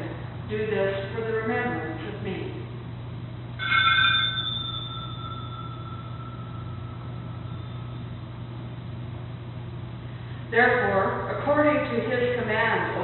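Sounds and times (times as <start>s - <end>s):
steady low hum: 0.0s - 13.0s
small bell ringing: 3.6s - 8.2s.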